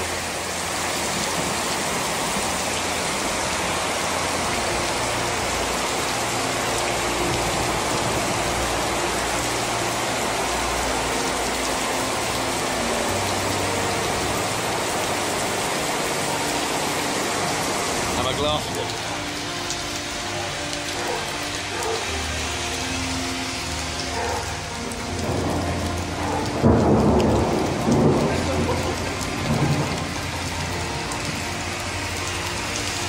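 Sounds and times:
torrential rain pouring: 0.0 - 33.0.

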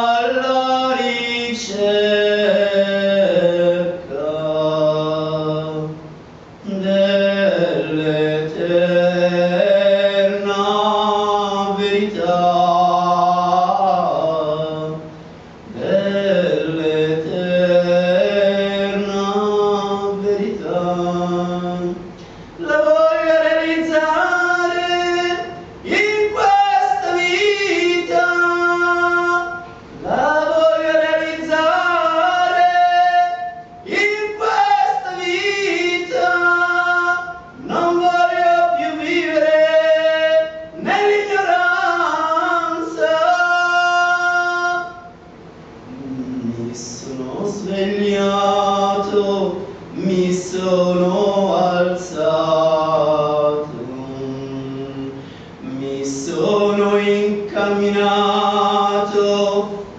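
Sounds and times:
man singing chant-like devotional song: 0.0 - 45.2, 45.9 - 59.9.

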